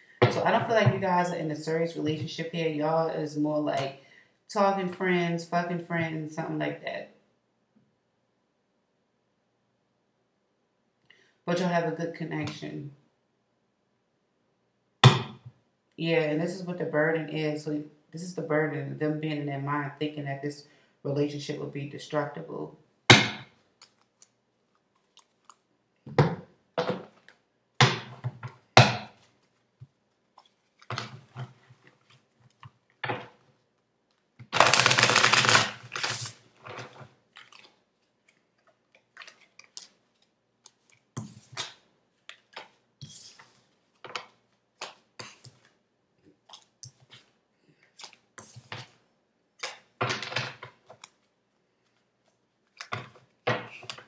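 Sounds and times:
cards rustling: 34.1s - 45.7s.

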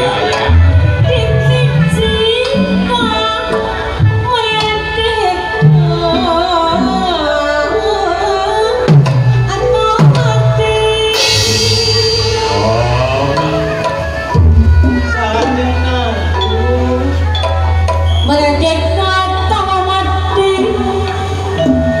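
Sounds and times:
gamelan music: 0.0s - 4.9s, 8.6s - 22.0s
woman singing into microphone: 0.9s - 11.5s, 18.3s - 22.0s
sustained gong tones: 11.1s - 14.6s
deep drum strokes: 11.2s - 15.1s.

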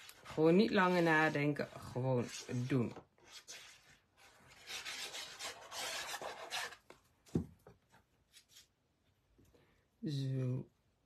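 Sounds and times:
glue bottle tip scraping paper: 2.2s - 6.8s.

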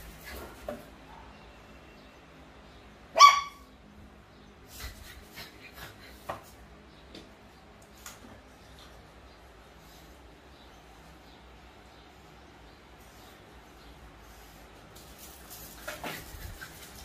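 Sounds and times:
puppy barking: 3.1s - 3.7s.

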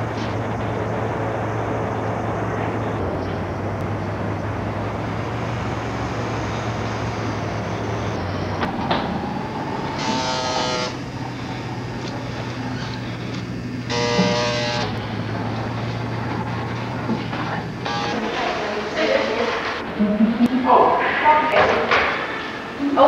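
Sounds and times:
tape hiss and low hum: 0.0s - 21.6s
brief buzzing tone: 10.0s - 11.6s, 13.9s - 16.8s, 17.8s - 19.8s.

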